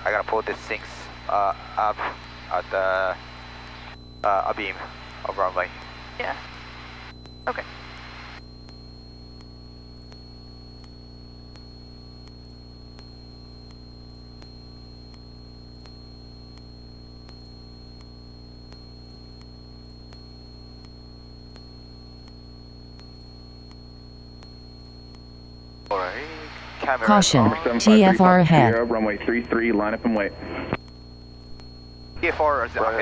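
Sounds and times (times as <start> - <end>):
faint high whine: 0.0 - 33.0
soft regular ticks: 5.8 - 26.0, 30.8 - 31.8
aircraft cockpit hum and hiss: 25.9 - 30.8.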